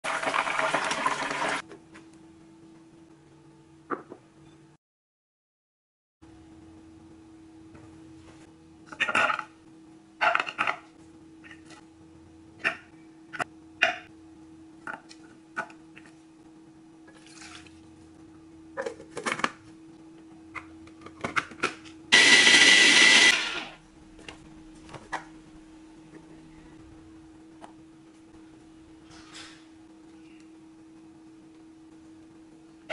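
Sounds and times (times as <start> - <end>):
food chopper motor grinding: 22.1 - 23.8.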